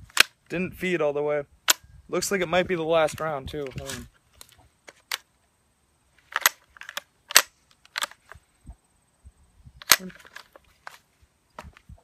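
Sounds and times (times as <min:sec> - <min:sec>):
rifle bolt metallic clacks: 0:06.3 - 0:08.3.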